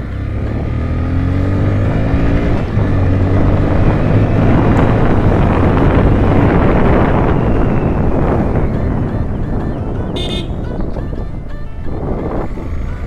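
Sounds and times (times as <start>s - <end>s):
motorcycle engine accelerating: 0.0s - 13.0s
wind rushing over microphone: 0.0s - 13.0s.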